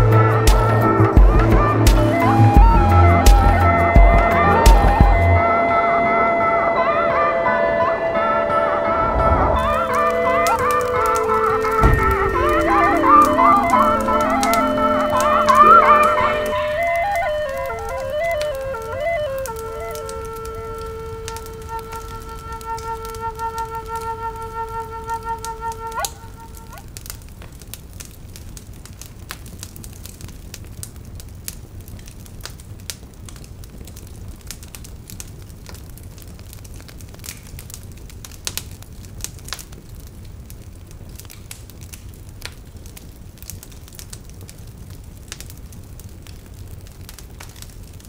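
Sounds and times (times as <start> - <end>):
wood fire crackling: 0.0 - 5.6, 9.0 - 48.0
flute note: 0.0 - 26.8.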